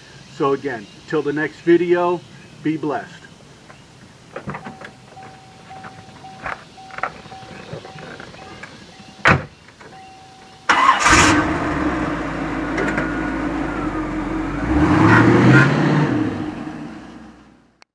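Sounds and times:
car engine starting and running: 0:10.7 - 0:17.7.

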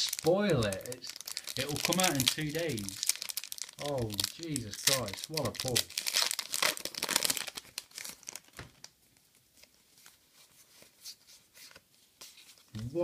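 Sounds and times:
foil wrapper crinkling: 0:00.0 - 0:09.0.

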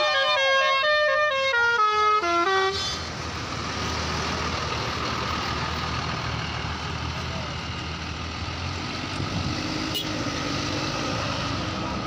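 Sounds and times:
multi-tone bus horn: 0:00.0 - 0:03.0, 0:09.9 - 0:10.2
bus engine and tyres: 0:00.0 - 0:12.0.

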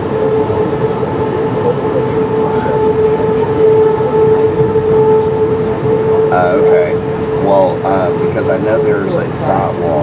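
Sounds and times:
constant high whine: 0:00.0 - 0:10.0
train rumbling on rails: 0:00.0 - 0:10.0.

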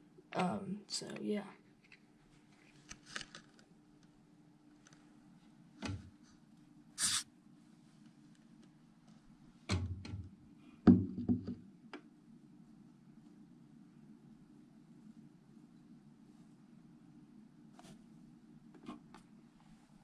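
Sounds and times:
faint low hum: 0:00.0 - 0:20.0
short scrape: 0:07.0 - 0:07.2.

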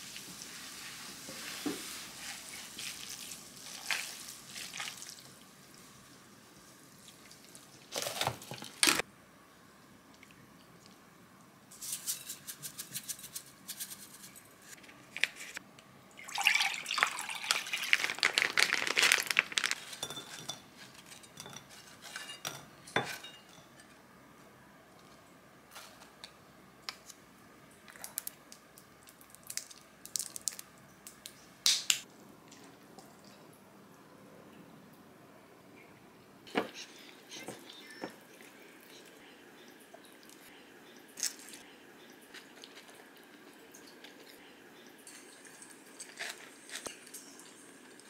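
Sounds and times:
dense crackling hiss: 0:17.7 - 0:20.1
dishes clinking: 0:19.9 - 0:23.9.

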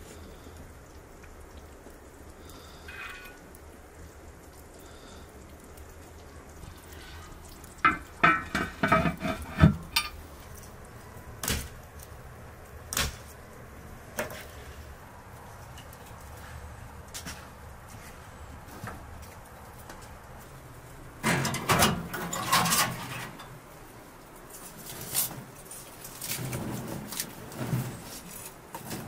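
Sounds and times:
metal clinking against pot: 0:07.8 - 0:10.2.

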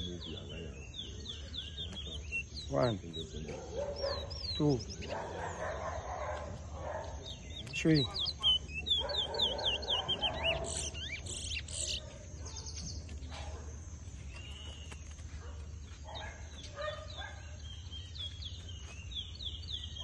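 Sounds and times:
finch singing whistled notes: 0:00.0 - 0:05.8, 0:07.0 - 0:13.1, 0:14.2 - 0:15.2.

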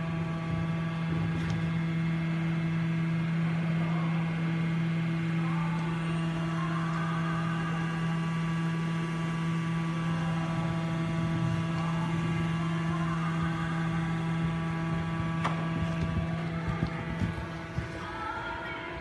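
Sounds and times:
horse cantering on sand: 0:00.0 - 0:02.4, 0:09.7 - 0:18.9
steady droning hum: 0:00.0 - 0:19.0.

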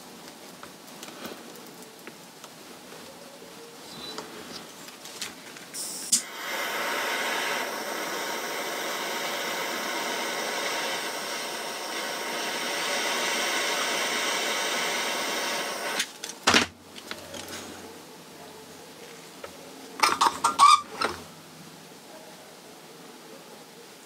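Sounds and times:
heat gun blowing: 0:05.8 - 0:16.1.

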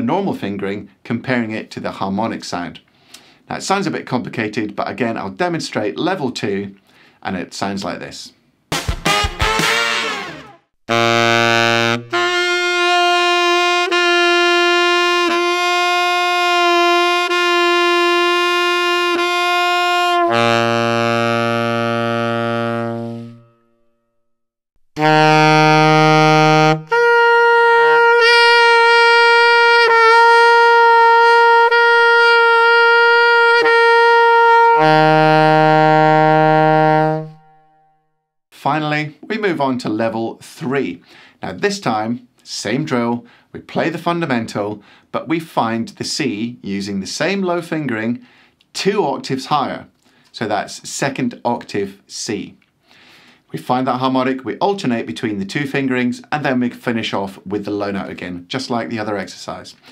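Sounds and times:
saxophone playing overtone exercise: 0:08.7 - 0:24.0, 0:25.0 - 0:37.9.

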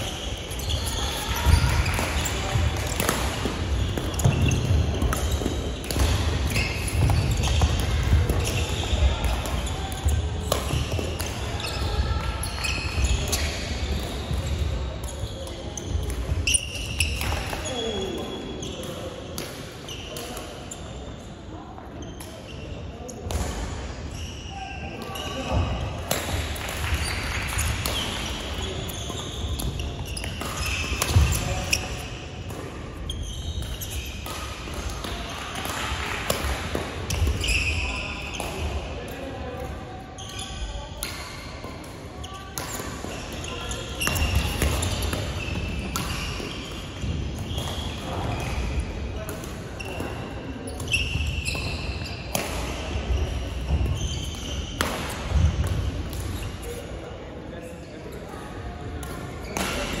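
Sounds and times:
sneakers squeaking: 0:00.0 - 0:21.3, 0:21.9 - 0:57.2, 0:58.0 - 1:00.0
racket hitting shuttlecock: 0:02.8 - 0:11.4, 0:29.3 - 0:32.8, 0:44.0 - 0:46.8, 0:52.3 - 0:53.0, 0:53.6 - 0:56.4.

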